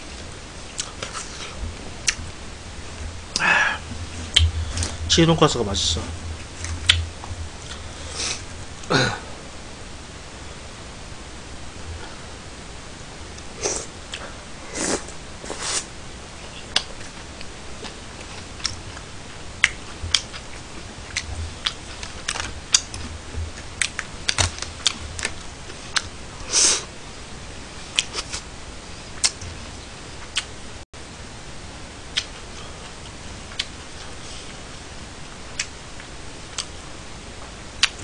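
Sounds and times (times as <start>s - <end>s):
chewing and mouth sounds: 0.7s - 2.2s, 19.6s - 26.1s, 27.9s - 28.4s, 32.1s - 34.1s, 35.6s - 36.7s.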